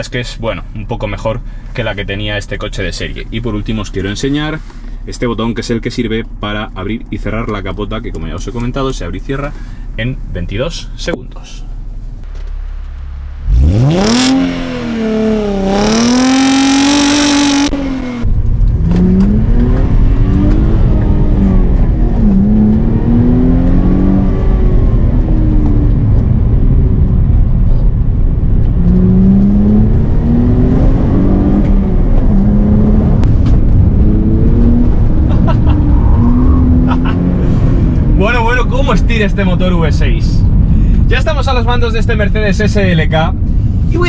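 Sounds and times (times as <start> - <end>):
road and wind rumble: 0.0 - 44.0
car engine accelerating: 12.2 - 41.1.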